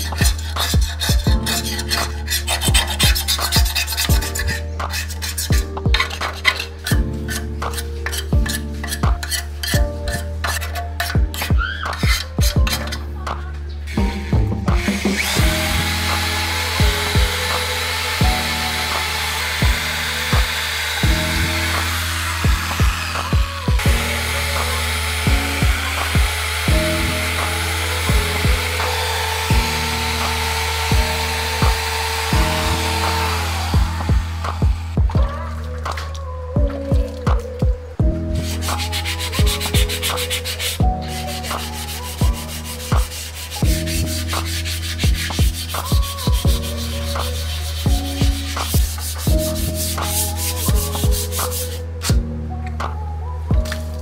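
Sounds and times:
power drill wire brush scouring: 0.0 - 13.0, 14.8 - 35.2, 38.4 - 51.8
sandpaper rasping on metal tube: 0.0 - 13.1, 15.1 - 34.9, 38.4 - 51.9
lofi hip-hop music: 0.0 - 54.0
deep kick drum: 0.2 - 1.4, 22.4 - 24.0, 25.3 - 26.9, 30.9 - 31.8, 33.8 - 35.4.

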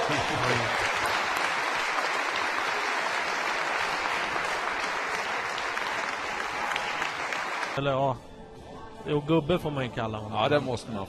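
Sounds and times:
crowd applauding: 0.0 - 7.8.

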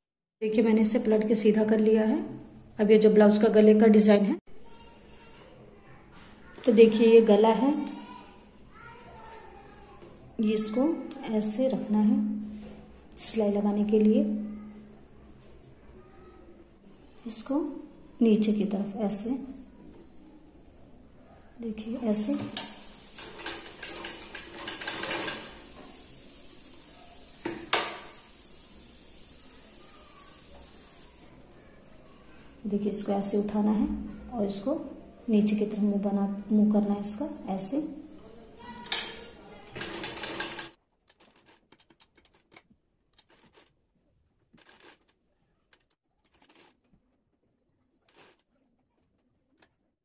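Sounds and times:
sewing machine clicking: 22.5 - 25.7, 39.7 - 43.7, 44.6 - 46.8, 48.1 - 48.5.

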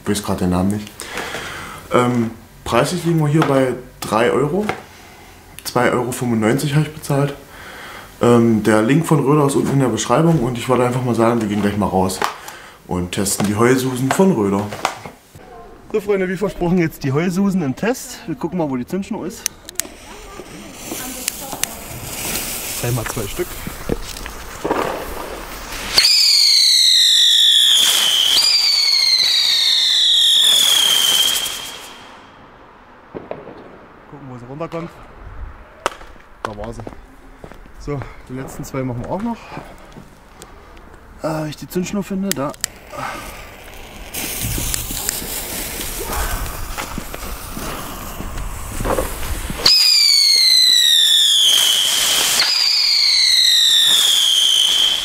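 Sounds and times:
whistling fireworks: 19.6 - 36.3, 42.6 - 55.0
piercing falling whistle: 25.9 - 32.5, 49.6 - 55.0.

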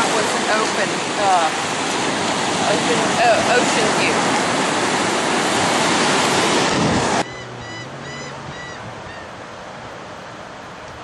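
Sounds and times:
surf breaking: 0.0 - 7.3
wind on microphone: 0.0 - 11.0
bird calling short notes: 6.7 - 9.3.

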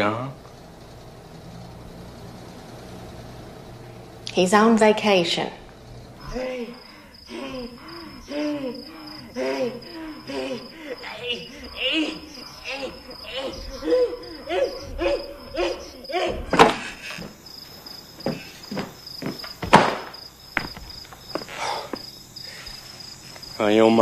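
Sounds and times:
crickets chirping: 0.0 - 24.0
man grunting rhythmically: 6.3 - 16.7.

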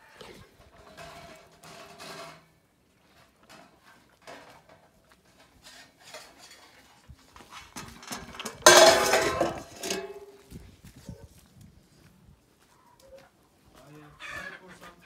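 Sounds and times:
metal bowl clattering: 8.0 - 10.4
metal bowl clinking: 8.6 - 10.3.

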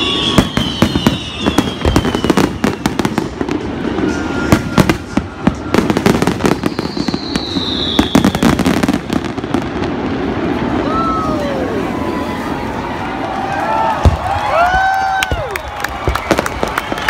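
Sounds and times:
high falling whistle: 0.0 - 8.8
fireworks bangs and crackles: 0.0 - 17.0.

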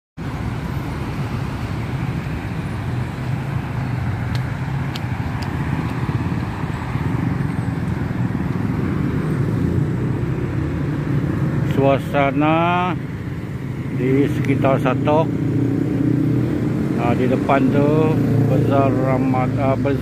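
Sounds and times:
road traffic rumble: 0.2 - 20.0.

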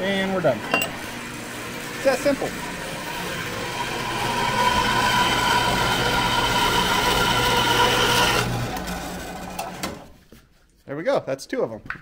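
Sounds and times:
bandsaw cutting steel: 0.6 - 10.0.

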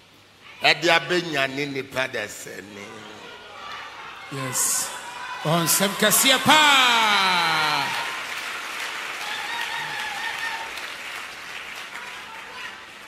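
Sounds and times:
man shouting: 4.3 - 8.2
congregation applauding: 5.4 - 13.0.

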